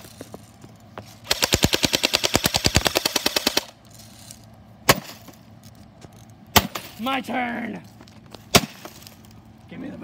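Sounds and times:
rapid machine-gun fire: 1.3s - 3.7s.

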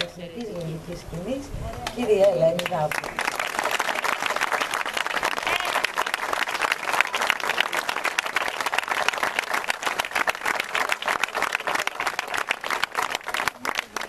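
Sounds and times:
audience applauding: 2.6s - 14.0s.

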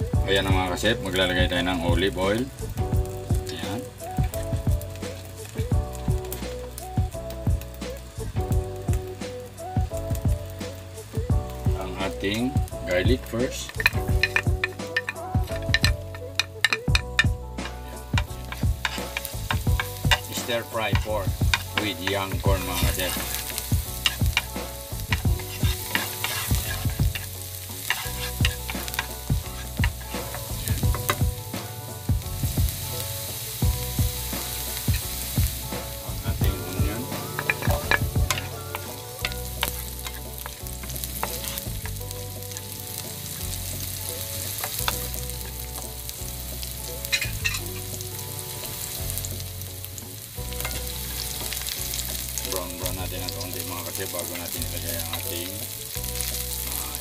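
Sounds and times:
garlic sizzling in oil: 0.0s - 57.0s
wooden spatula scraping pan: 13.2s - 31.2s, 34.3s - 45.9s.

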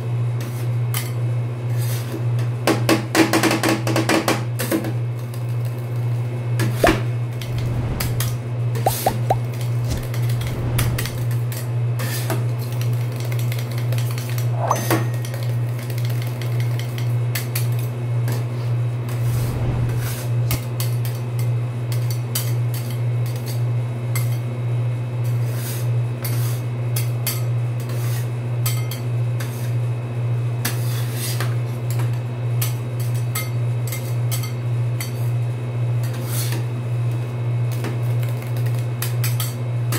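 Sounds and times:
steady low hum: 6.8s - 11.5s, 18.9s - 20.6s.

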